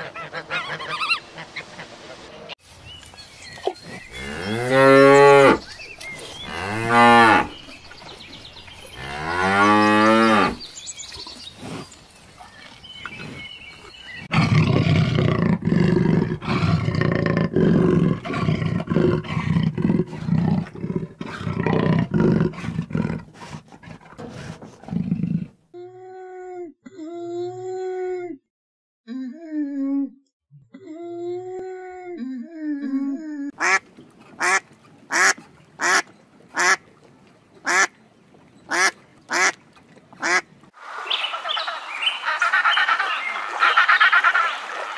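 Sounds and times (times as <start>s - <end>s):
cattle mooing: 4.1s - 5.6s, 6.4s - 7.6s, 8.9s - 10.6s.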